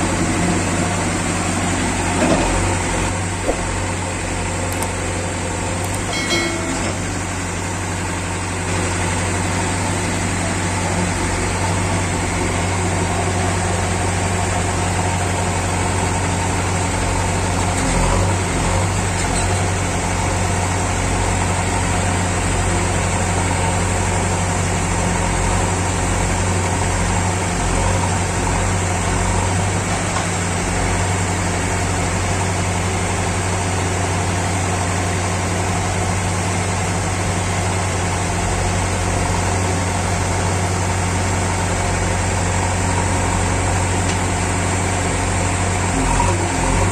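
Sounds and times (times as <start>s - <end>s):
backhoe digging and dumping sand: 0.0s - 20.6s
diesel engine running: 0.0s - 46.9s.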